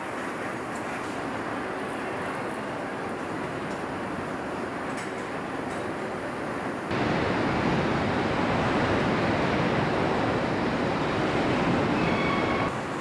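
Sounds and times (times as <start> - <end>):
factory floor rushing noise: 6.9 - 13.0
faint high whine: 6.9 - 13.0.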